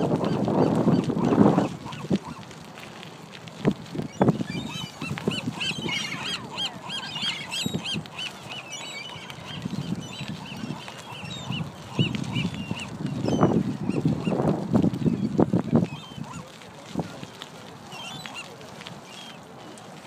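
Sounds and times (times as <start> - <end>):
gulls calling: 0.0 - 2.6, 3.9 - 20.0.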